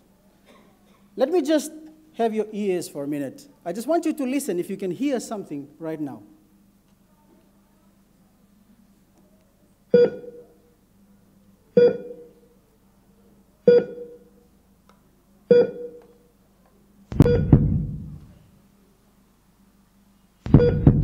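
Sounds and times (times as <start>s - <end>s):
heart monitor beeping: 9.9s - 10.5s, 11.8s - 12.4s, 13.7s - 14.3s, 15.5s - 16.1s, 17.1s - 18.3s, 20.5s - 21.0s.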